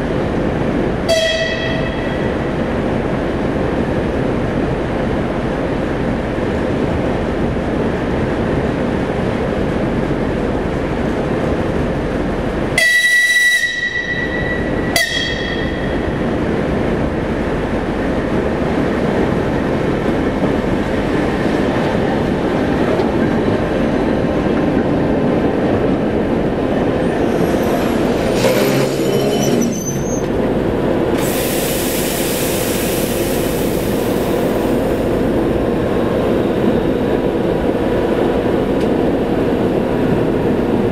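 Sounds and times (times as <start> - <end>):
diesel locomotive engine: 0.0 - 40.9
locomotive horn blast: 1.1 - 2.3, 12.8 - 16.0, 27.2 - 30.4.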